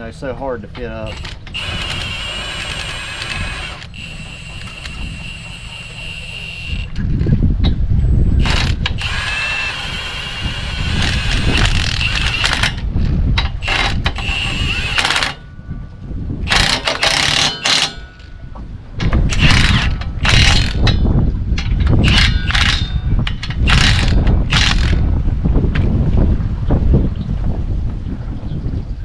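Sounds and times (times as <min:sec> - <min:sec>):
impact wrench hammering bolts: 0:13.4 - 0:15.4, 0:16.5 - 0:18.1, 0:19.1 - 0:25.0.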